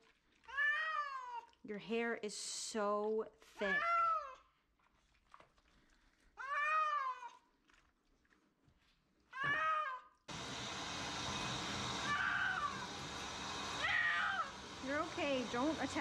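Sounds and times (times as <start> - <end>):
cat meowing: 6.4 - 7.4, 13.8 - 14.5
shower sprayer hissing water: 10.3 - 16.0.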